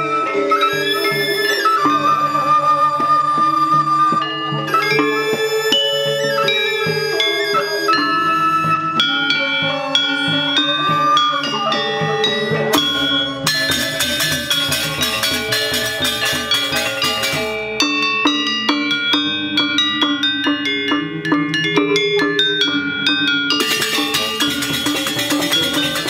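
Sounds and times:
bamboo flute: 0:00.0 - 0:26.0
hand drums: 0:00.0 - 0:26.0
metallophones struck: 0:12.2 - 0:26.0.

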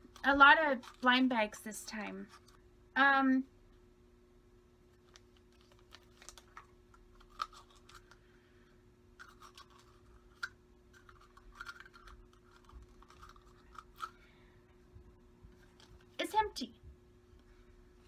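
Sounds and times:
toy package crinkling: 0:00.0 - 0:02.6, 0:04.9 - 0:08.2, 0:09.2 - 0:14.2.

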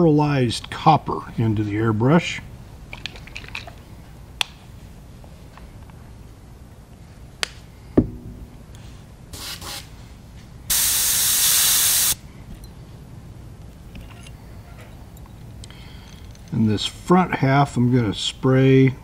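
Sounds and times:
knock: 0:08.0 - 0:08.8
airbrush hissing: 0:10.7 - 0:12.2.

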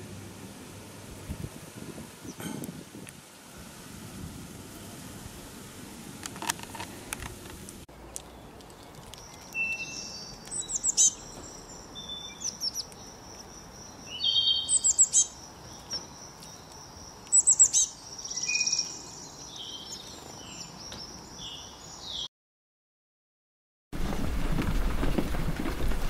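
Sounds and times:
songbirds chirping: 0:04.7 - 0:22.3
buzzy bird trill: 0:09.2 - 0:22.2.

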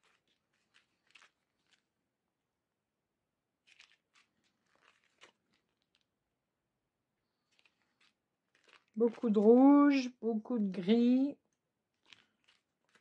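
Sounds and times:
plastic bags crinkling: 0:00.0 - 0:01.9, 0:03.6 - 0:06.1, 0:07.3 - 0:13.0.

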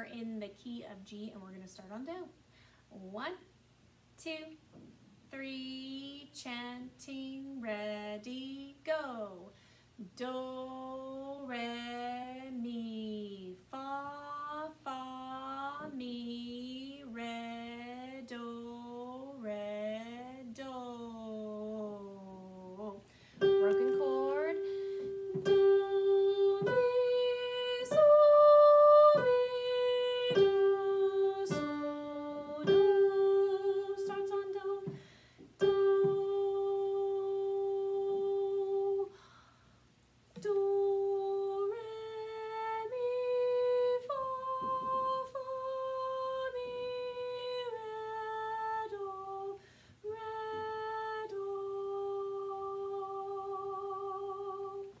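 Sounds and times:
woman singing held notes: 0:05.3 - 0:39.2.

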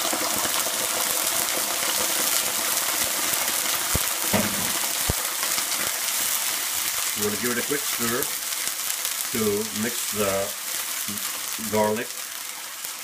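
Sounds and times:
sauce sizzling in frying pan: 0:00.0 - 0:13.0
sharp knocks: 0:04.3 - 0:04.8.

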